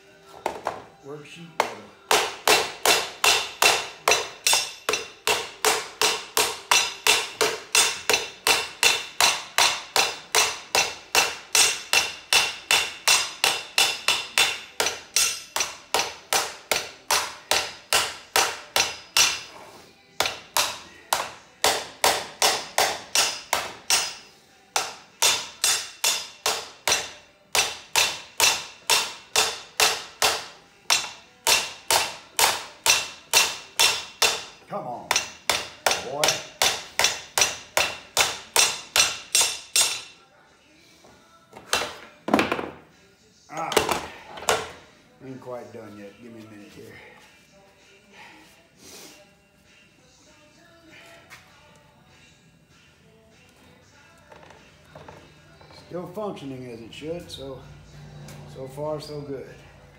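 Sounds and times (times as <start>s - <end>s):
hammer striking sheet metal on anvil: 2.1s - 19.5s, 20.2s - 40.2s.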